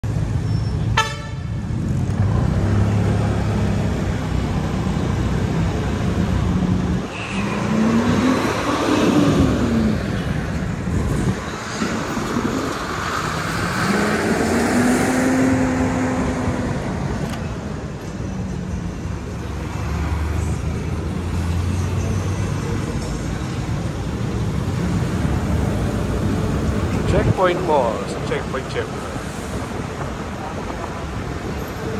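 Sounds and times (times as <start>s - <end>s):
engine and tyre noise: 0.0s - 31.9s
road traffic: 0.0s - 31.9s
vehicle revving past: 11.0s - 17.1s.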